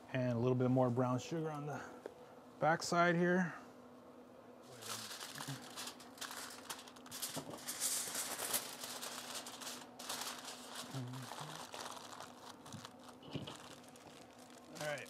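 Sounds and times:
aluminium foil crinkling: 0:04.7 - 0:15.0.

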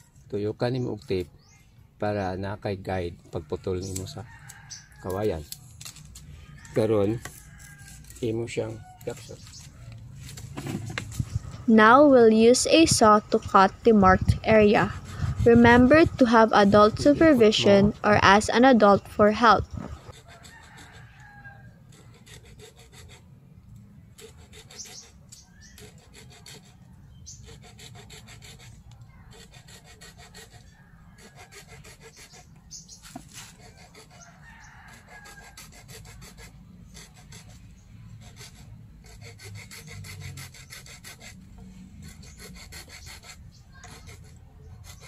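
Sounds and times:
hand saw cutting bamboo: 0:21.9 - 0:23.3, 0:24.2 - 0:34.3, 0:34.9 - 0:45.0.

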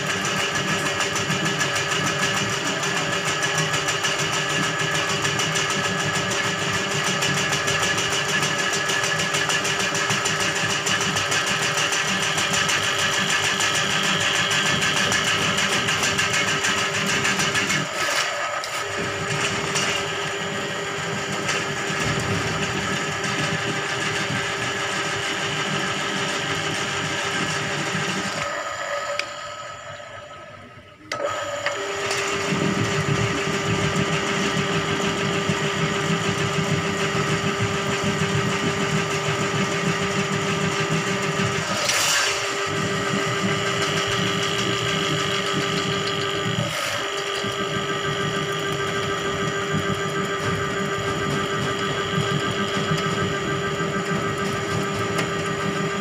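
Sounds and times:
drain cleaning machine motor: 0:00.0 - 0:56.0.

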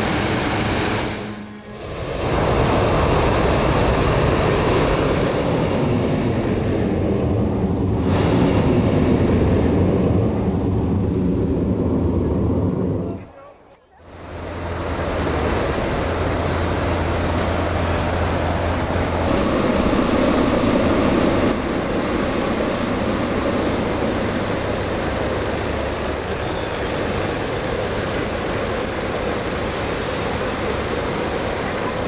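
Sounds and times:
low hum: 0:14.2 - 0:29.8
propane burner roaring: 0:14.2 - 0:32.0.

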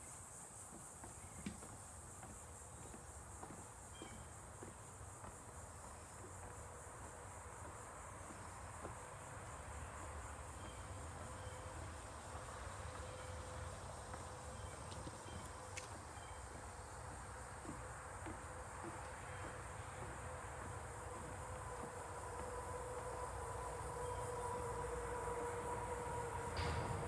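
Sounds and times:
insects trilling: 0:00.0 - 0:27.0.

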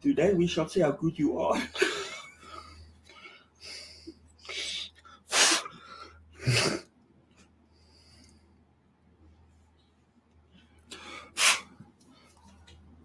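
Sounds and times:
faint low hum: 0:00.0 - 0:13.0
person puffing air: 0:05.3 - 0:05.7, 0:11.0 - 0:11.8.

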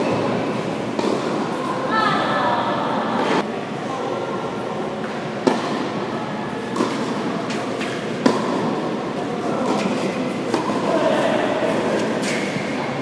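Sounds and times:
tennis racket hitting ball: 0:00.0 - 0:01.6, 0:05.1 - 0:06.0, 0:06.6 - 0:12.8
indoor hall background noise: 0:00.0 - 0:13.0.

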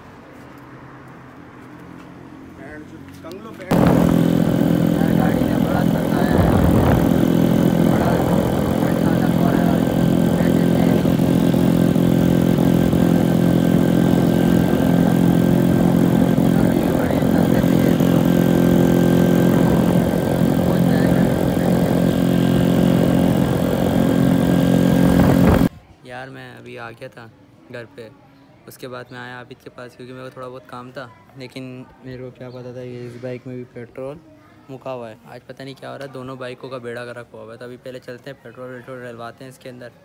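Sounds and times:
wind and road noise: 0:00.0 - 0:25.7
motorcycle engine cruising: 0:03.7 - 0:25.7.

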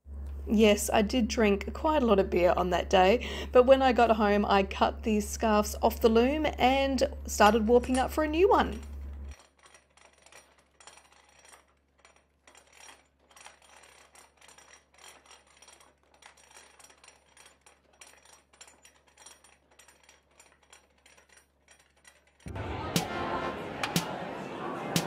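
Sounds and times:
wooden loom clicking and rattling: 0:06.0 - 0:22.5.

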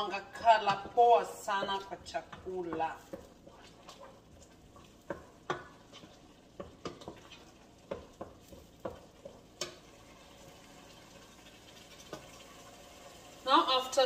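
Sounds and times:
wooden spoon knocking metal pot: 0:00.0 - 0:09.8
faint sizzle: 0:00.0 - 0:14.0.

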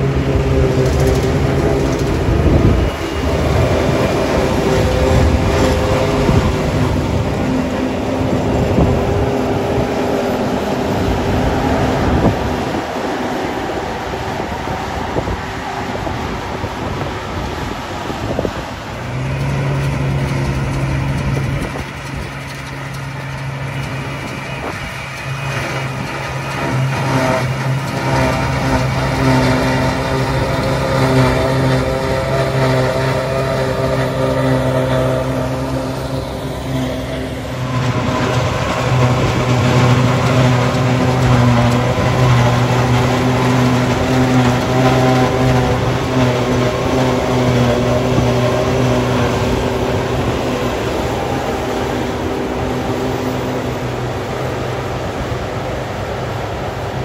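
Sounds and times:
second tractor running: 0:00.0 - 0:57.0
tractor engine and machine drone: 0:00.0 - 0:57.0.

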